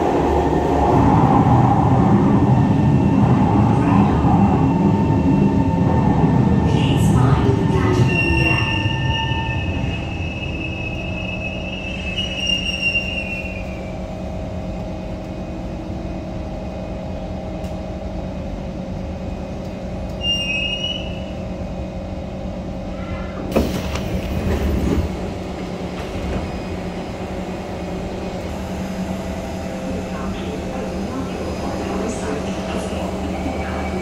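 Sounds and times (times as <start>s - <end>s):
metro train rumble: 0.0s - 34.0s
wheel squeal: 8.1s - 13.7s.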